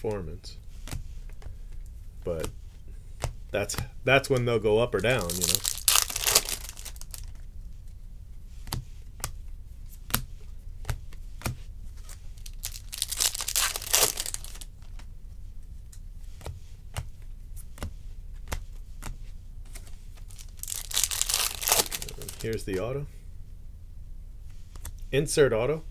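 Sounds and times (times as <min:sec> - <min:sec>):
foil wrapper crinkling and tearing: 0:04.9 - 0:07.4, 0:12.1 - 0:14.9, 0:20.3 - 0:22.8.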